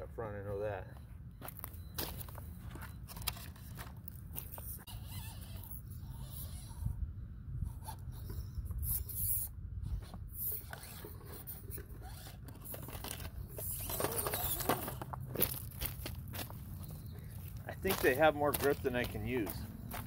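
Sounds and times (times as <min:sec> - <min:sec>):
small electric motor whirring: 0:03.1 - 0:07.0, 0:07.7 - 0:16.0
tires scrabbling on stone: 0:10.1 - 0:20.0
toy truck clattering onto rocks: 0:12.2 - 0:16.5.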